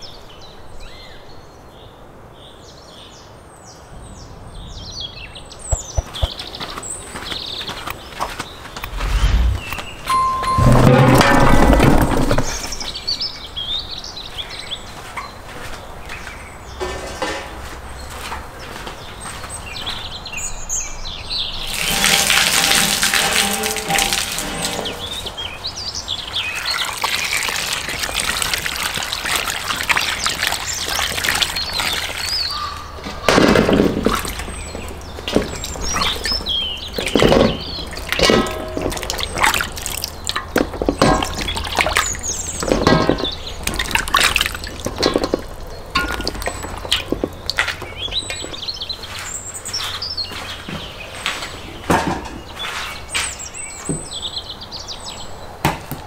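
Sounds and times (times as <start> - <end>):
water splashing in metal tubs: 9.4 - 13.7, 21.6 - 50.6
water running from a hose: 21.6 - 25.4, 26.3 - 32.6, 33.9 - 42.8, 43.5 - 47.8.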